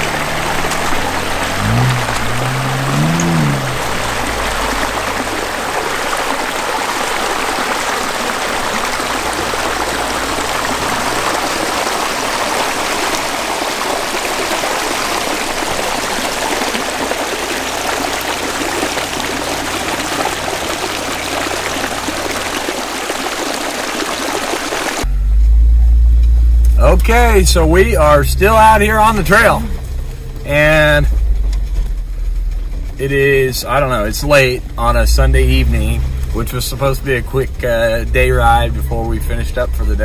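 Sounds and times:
water splashing over rocks: 0.0 - 25.1, 27.0 - 31.1.

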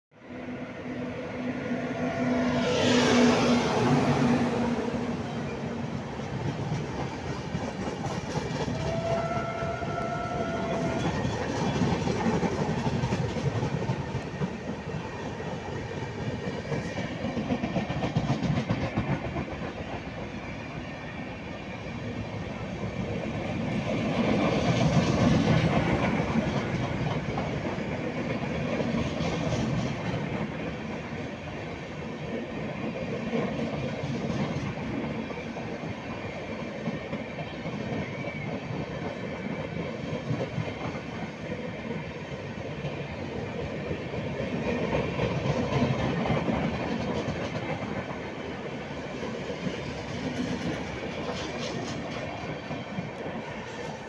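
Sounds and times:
electric locomotive humming: 0.2 - 54.0
train horn: 0.3 - 5.9, 8.6 - 11.8
train wheels clattering on rails: 2.7 - 54.0.

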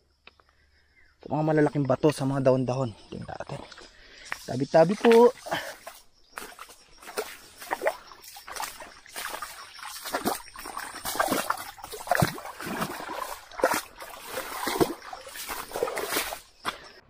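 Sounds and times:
water splashing in a stream: 3.6 - 17.0.

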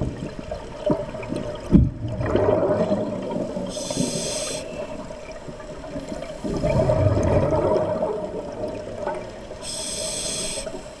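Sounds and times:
exhaled bubbles underwater: 0.0 - 9.8
regulator inhale hiss: 3.6 - 5.0, 9.6 - 11.0.

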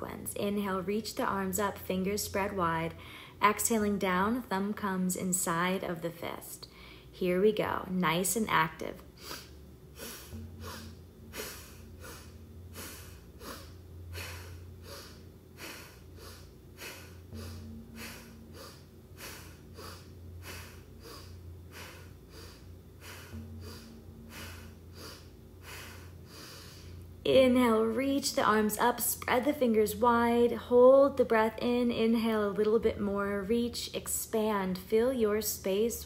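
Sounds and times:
woman breathing forcefully: 3.0 - 3.4, 9.1 - 27.2.

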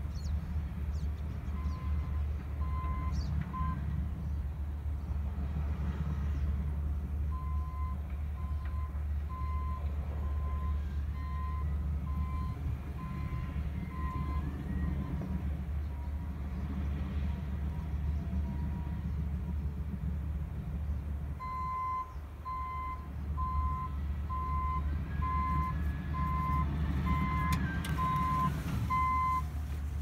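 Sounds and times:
distant diesel engines rumbling: 0.0 - 30.0
backup alarm beeping: 21.4 - 29.5.

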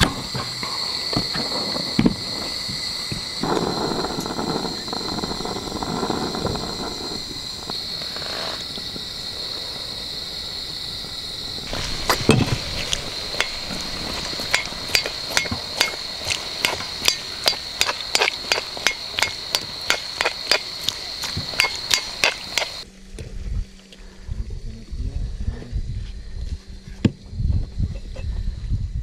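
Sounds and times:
sharp knocks: 14.4 - 22.8.

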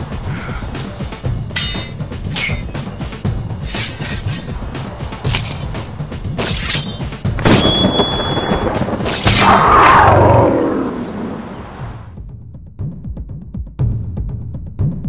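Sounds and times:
soundtrack music: 0.0 - 13.3
sharp hits: 3.6 - 11.8
high ringing tone: 7.5 - 8.7
loud falling roar: 8.6 - 12.0.

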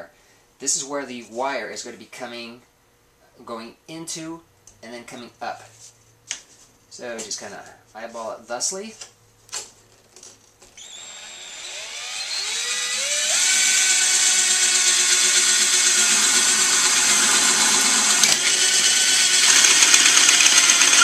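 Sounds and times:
cordless drill boring through metal: 10.8 - 21.0.

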